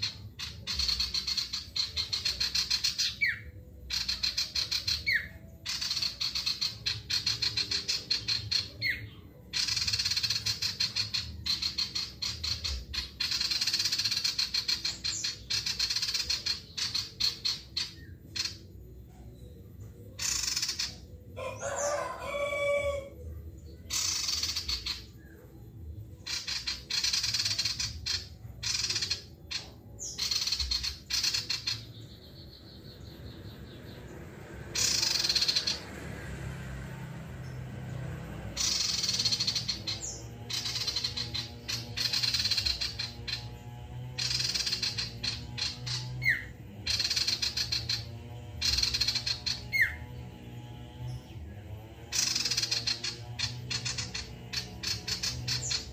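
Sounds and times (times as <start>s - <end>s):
bird chattering song: 0.0s - 55.9s
rooster crowing: 21.4s - 23.3s.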